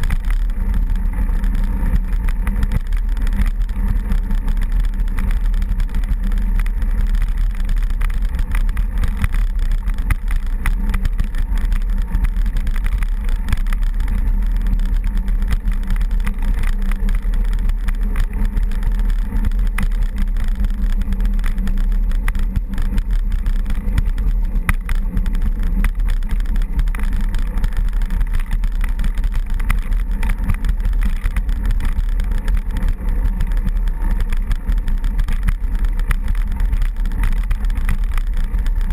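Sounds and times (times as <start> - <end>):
rattles and clicks: 0.0 - 38.9
vehicle engine running: 0.0 - 38.9
wind rumble on microphone: 0.0 - 38.9.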